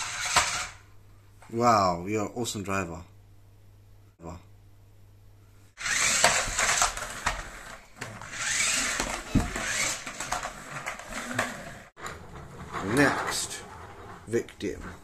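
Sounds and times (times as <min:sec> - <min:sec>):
toy car motors whirring: 0:00.0 - 0:00.8, 0:05.8 - 0:11.9
toy car wheels rattling: 0:00.0 - 0:00.8, 0:05.8 - 0:15.0.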